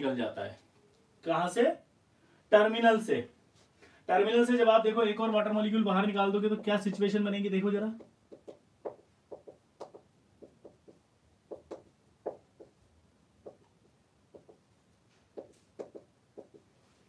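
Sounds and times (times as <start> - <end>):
marker tapping on whiteboard: 6.4 - 7.2, 7.9 - 12.8, 13.4 - 14.7, 15.3 - 16.7.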